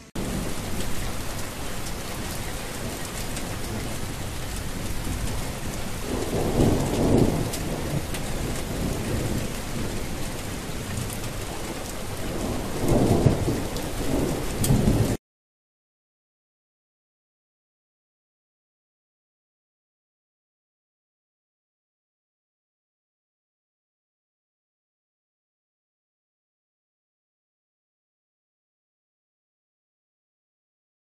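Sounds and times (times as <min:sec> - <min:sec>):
heavy rain: 0:00.1 - 0:15.2
thunder rolling: 0:00.1 - 0:15.2.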